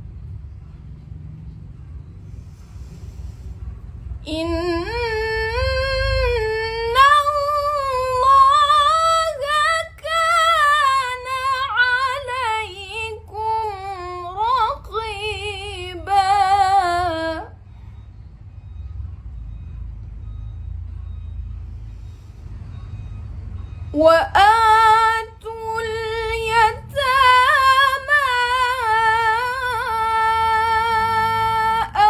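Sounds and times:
low steady rumble: 0.0 - 32.0
woman reciting melodically: 4.2 - 17.6, 24.0 - 32.0.

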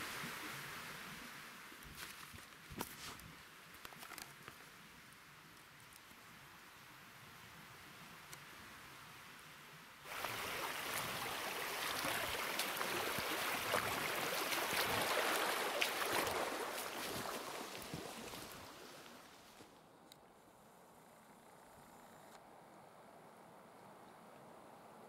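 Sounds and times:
creek water rushing: 0.0 - 2.1, 10.0 - 19.6
footsteps splashing in water: 10.1 - 19.6.

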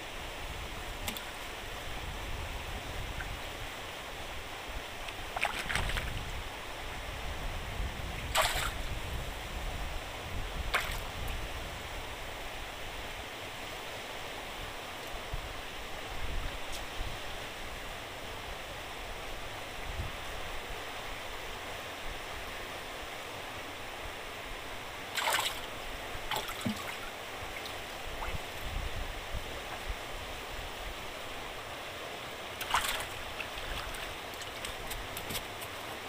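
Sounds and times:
water rushing from sluice gate: 0.2 - 6.8, 8.2 - 9.0, 23.6 - 36.0.

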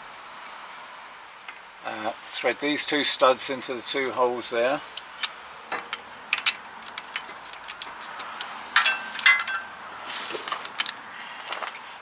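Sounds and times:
metal tool clinking: 4.9 - 9.8
loud ringing metal clinks: 8.8 - 9.8.

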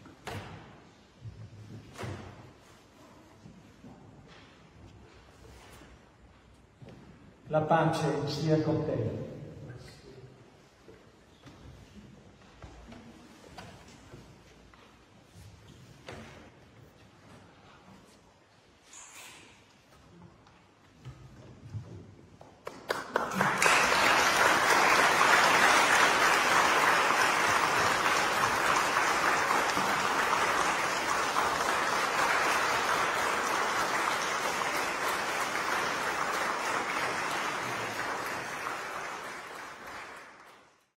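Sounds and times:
congregation applauding: 22.6 - 40.9.

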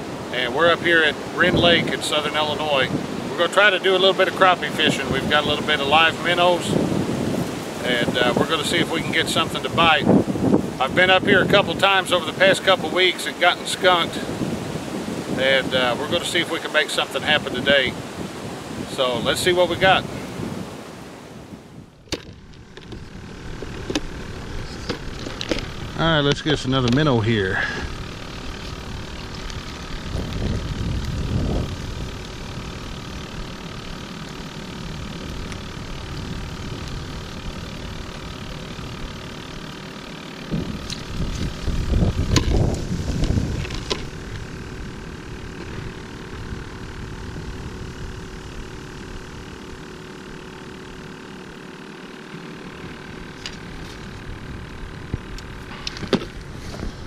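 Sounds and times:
battery aerator humming: 0.0 - 57.0
wind buffeting microphone: 4.2 - 16.5, 17.1 - 33.7, 40.5 - 49.5.

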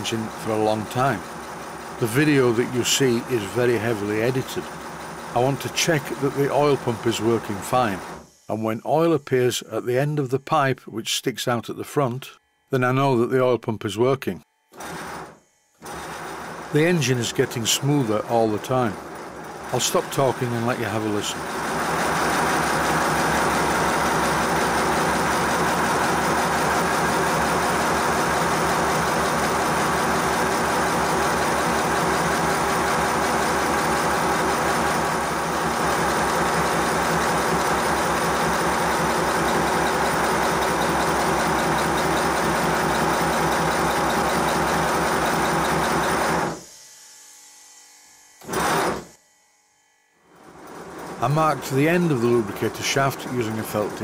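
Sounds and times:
model locomotive running: 0.0 - 9.6, 14.8 - 46.7, 50.3 - 54.0.

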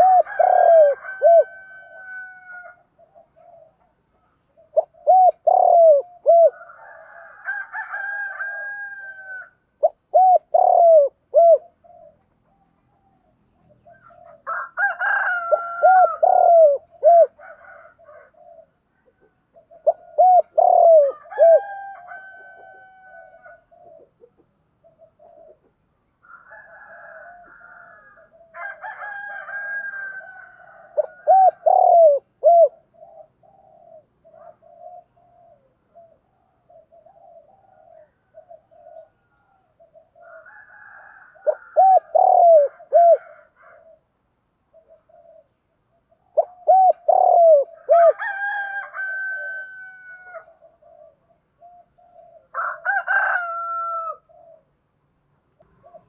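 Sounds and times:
dove cooing: 0.0 - 54.8, 55.6 - 56.0
bird held calls: 4.6 - 6.6, 9.8 - 14.5, 19.5 - 25.6, 31.0 - 40.2, 41.4 - 44.0, 44.7 - 48.2.

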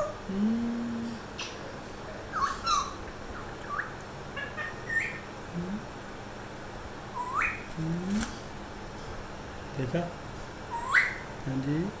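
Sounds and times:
parrot whistling and chirping: 2.3 - 5.3, 7.2 - 7.7, 10.7 - 11.3.

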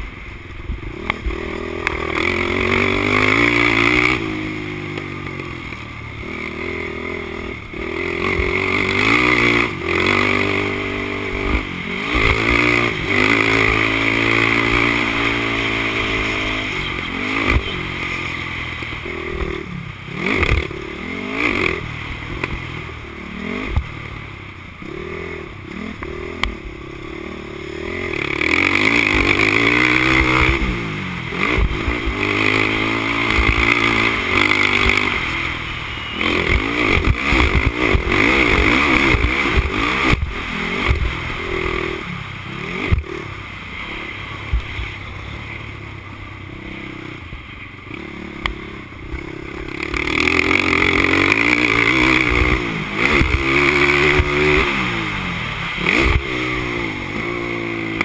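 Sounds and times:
quad engine revving: 0.9 - 24.1, 24.8 - 43.4, 47.9 - 58.0
knocks and clatter over bumps: 36.4 - 41.2.

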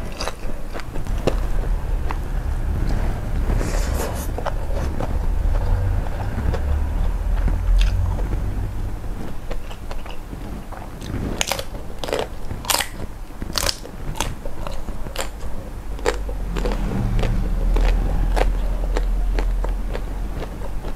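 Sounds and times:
chewing prawns: 0.0 - 20.9.

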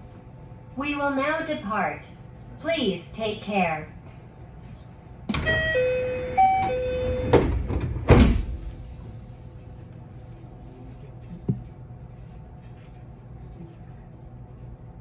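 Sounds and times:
low rumble of stopped train: 3.9 - 15.0
sliding doors thudding shut: 5.3 - 8.7
two-note door chime: 5.4 - 7.4.

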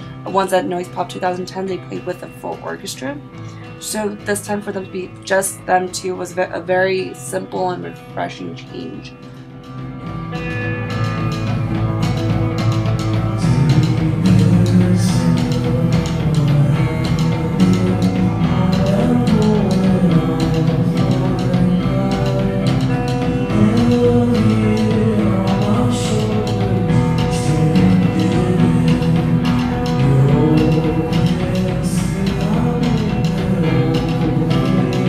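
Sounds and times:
electric guitar playing: 0.0 - 35.0
drum kit hits: 9.6 - 35.0
man singing: 13.3 - 35.0.

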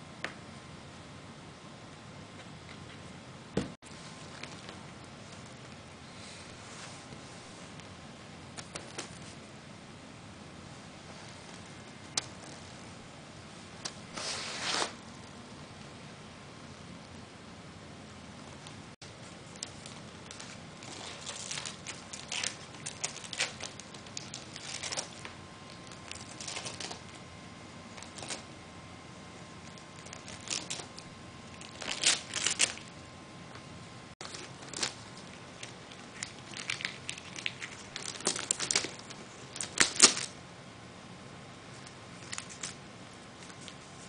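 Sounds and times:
wrapping paper crinkling: 19.2 - 27.2, 27.9 - 28.5, 29.6 - 33.0, 34.2 - 40.4, 41.8 - 42.8.

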